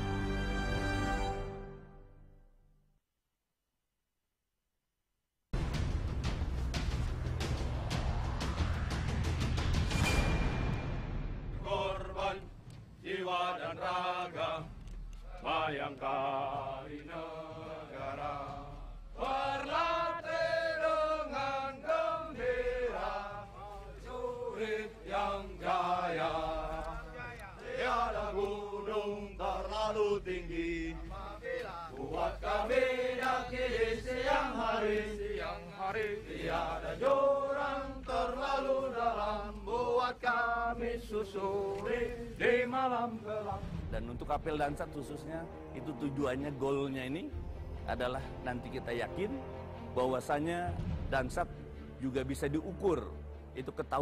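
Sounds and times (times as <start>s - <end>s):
soldiers chanting in unison: 11.5s - 43.9s.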